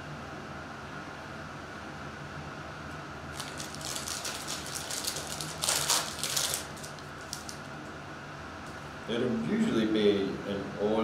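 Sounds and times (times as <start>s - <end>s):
foil wrapper tearing and crinkling: 3.3s - 7.8s.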